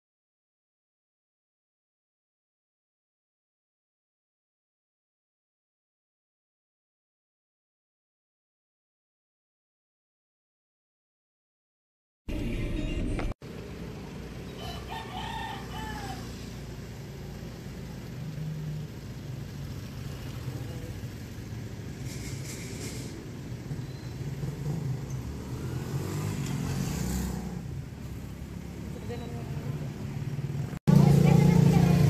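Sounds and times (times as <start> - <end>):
traffic engine hum: 12.3 - 32.0
vehicle passing: 13.4 - 32.0
rooster crowing: 14.5 - 16.6.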